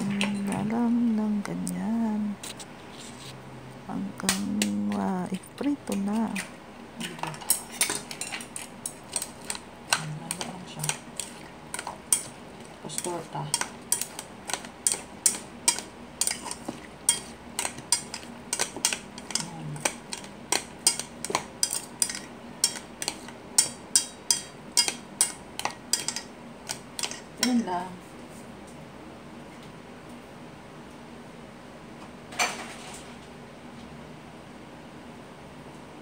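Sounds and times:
utensil stirring batter in metal bowl: 4.2s - 27.7s.

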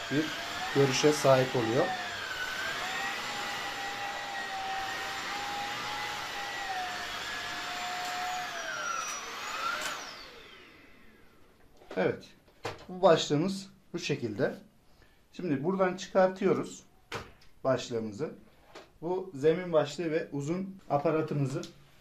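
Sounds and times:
vacuum motor winding down: 0.0s - 11.4s
vacuum cleaner whine: 0.0s - 11.6s.

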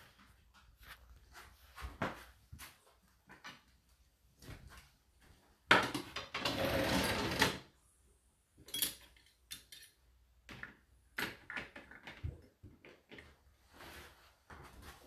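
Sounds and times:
cutlery clinking: 8.7s - 10.0s.

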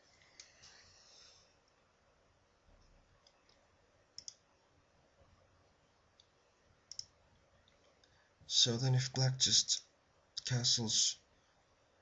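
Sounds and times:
computer mouse clicks: 2.8s - 3.6s, 4.2s - 4.5s, 6.9s - 8.2s.

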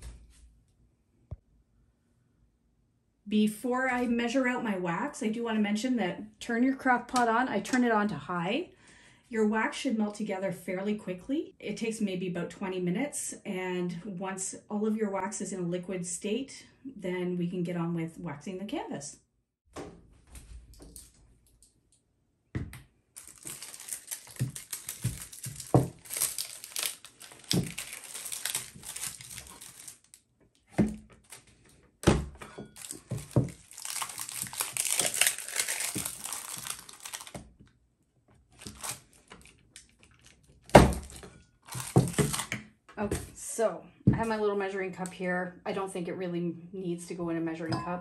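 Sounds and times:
plastic wrapping crinkling and tearing: 23.2s - 31.8s, 32.7s - 37.6s, 38.5s - 42.6s.

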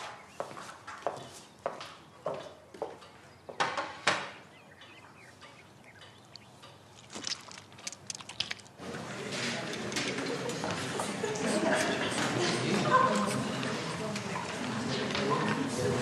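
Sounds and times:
dishes knocking and clinking: 3.5s - 4.4s.

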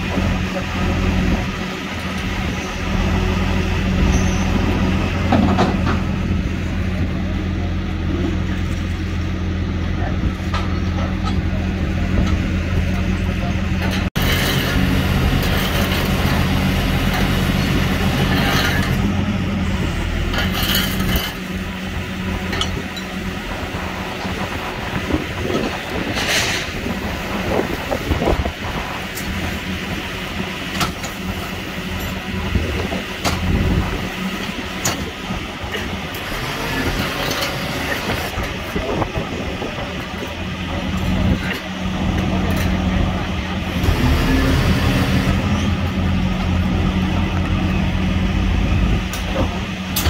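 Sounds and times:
heavy vehicle engine idling: 0.0s - 50.0s
knocks and clanks: 5.2s - 6.1s.

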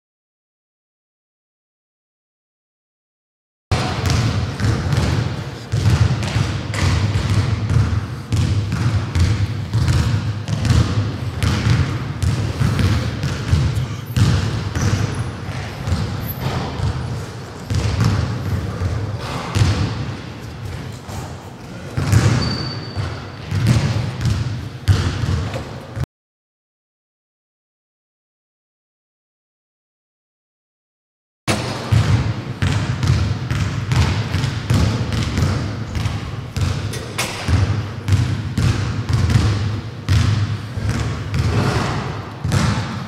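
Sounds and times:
basketballs bouncing on wooden floor: 3.7s - 26.0s, 31.5s - 43.0s.

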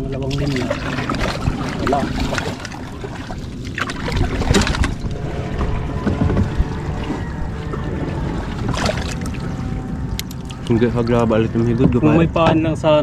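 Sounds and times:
low rumble: 0.0s - 13.0s
water splashing: 0.0s - 13.0s
knocks on a boat: 4.4s - 6.7s, 11.8s - 12.8s.

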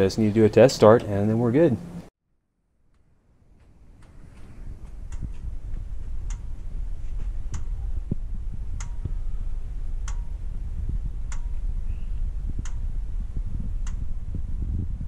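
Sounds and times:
low rumble: 3.2s - 15.0s
sharp ticks: 10.0s - 10.4s, 11.3s - 11.6s, 13.8s - 14.1s.

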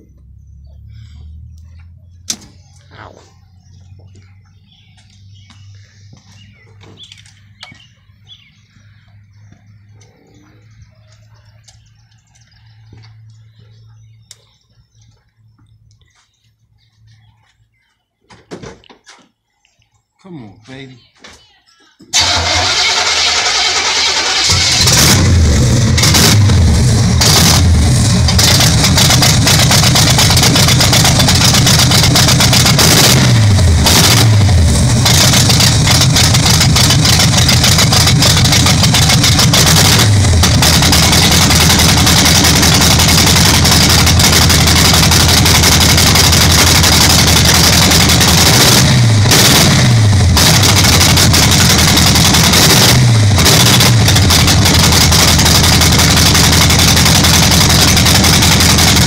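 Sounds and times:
car engine revving: 22.2s - 59.0s.

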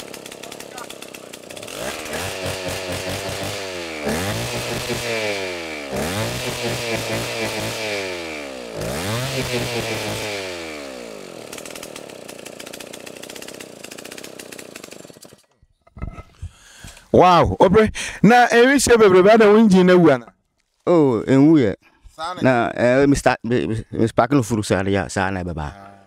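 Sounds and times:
chainsaw revving and idling: 0.0s - 15.6s.

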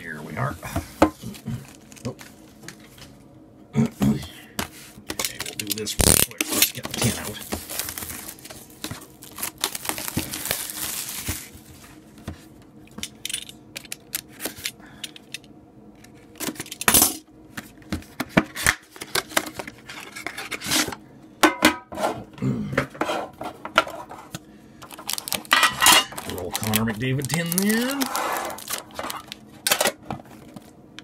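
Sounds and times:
wrapping rustling: 5.3s - 12.0s, 24.9s - 29.4s.

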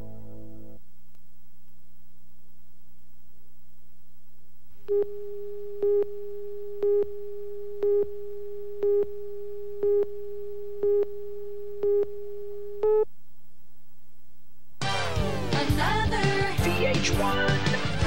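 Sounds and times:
steady test tone: 0.0s - 16.3s
faint low hum: 0.0s - 16.6s
countdown beeps: 10.8s - 11.1s.

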